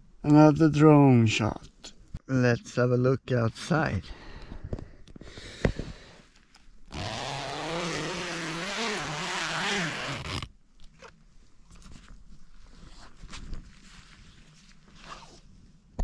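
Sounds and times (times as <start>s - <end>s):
zipper pulled open: 6.9s - 11.1s, 14.9s - 15.5s
fabric rustling: 11.5s - 15.5s.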